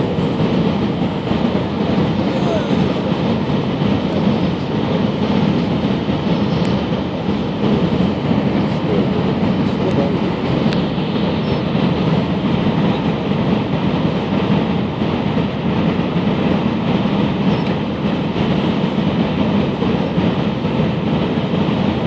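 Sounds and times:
airplane engines rumbling: 0.0 - 22.0.

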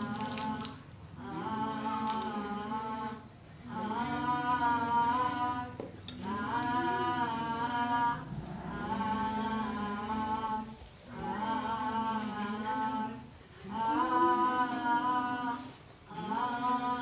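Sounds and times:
person singing wordless tune: 0.0 - 17.0.

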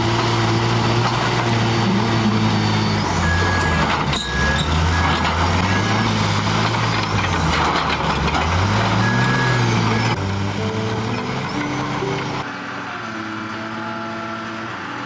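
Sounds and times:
bulldozer diesel engine straining: 0.0 - 15.0
grinding tracks and rocks: 0.0 - 15.0.

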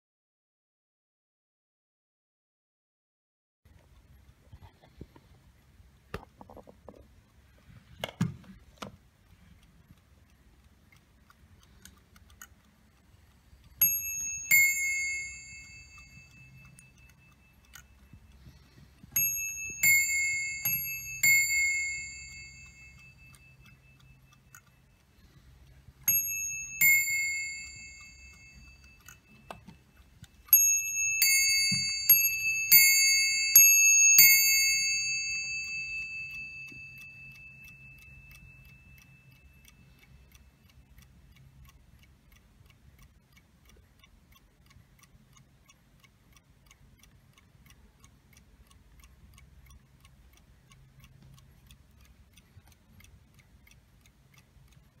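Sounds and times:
faint clock ticking: 3.7 - 55.0
clock striking on bell: 13.8 - 17.0, 19.2 - 23.6, 26.1 - 29.7, 30.5 - 38.1.

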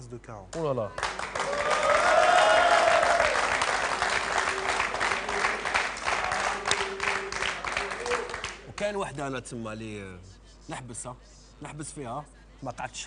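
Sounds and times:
audience applauding: 1.0 - 8.9
person cheering: 1.4 - 3.5.

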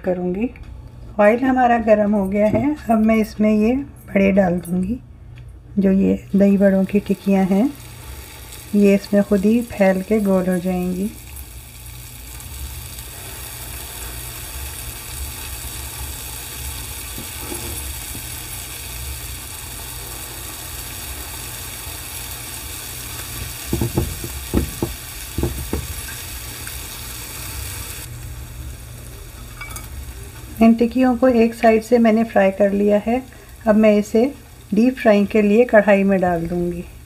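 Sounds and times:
oil sizzling in a frying pan: 6.3 - 37.0
sharp knocks: 23.7 - 26.0.

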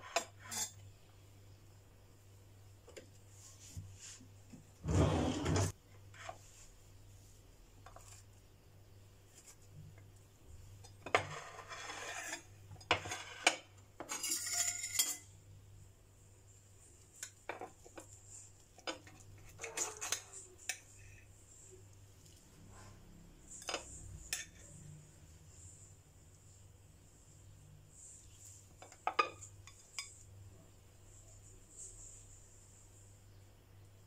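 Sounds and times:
cutlery scraping on china plate: 0.0 - 0.8, 10.8 - 15.3, 18.8 - 21.3, 23.5 - 24.8.

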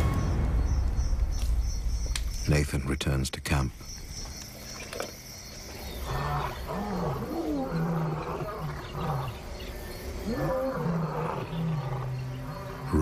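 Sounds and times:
lion roaring: 6.0 - 9.4, 10.2 - 13.0.

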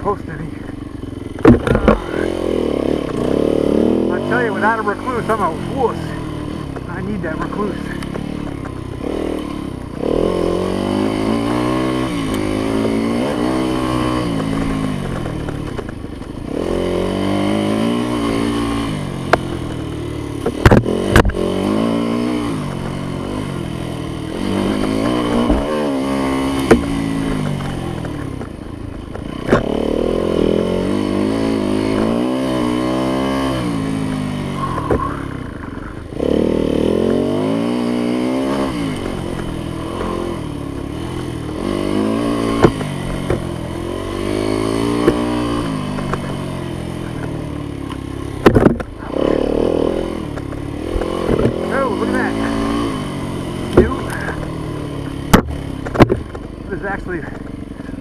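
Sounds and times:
dirt bike engine revving: 0.0 - 58.0
sharp knocks and clatters: 0.6 - 2.0, 14.2 - 16.4, 19.3 - 21.8, 26.5 - 29.8, 41.9 - 43.6, 44.8 - 46.4, 47.0 - 49.0, 50.2 - 51.7, 55.2 - 56.5.

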